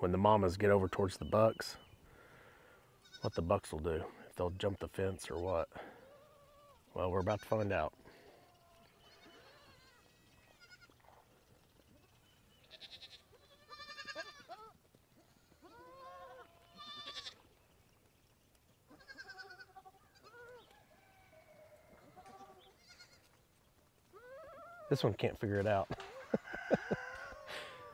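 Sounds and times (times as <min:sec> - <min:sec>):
goats bleating: 0:02.9 - 0:04.2, 0:05.2 - 0:11.2, 0:12.6 - 0:17.5, 0:18.9 - 0:20.6, 0:22.0 - 0:23.4.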